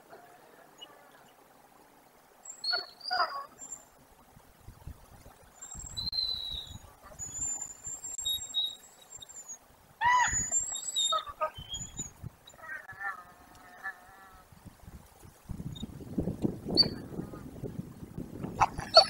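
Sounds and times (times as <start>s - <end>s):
wolves yelping whimpers: 2.6s - 3.6s, 9.4s - 14.0s, 18.6s - 19.0s
high whistled squeals: 5.6s - 12.2s.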